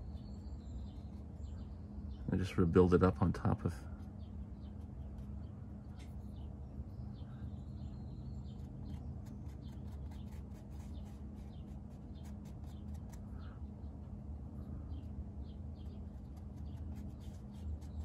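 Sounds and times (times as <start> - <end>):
low room hum: 0.0 - 18.0
brush dabbing on paper: 8.6 - 13.2, 16.1 - 18.0.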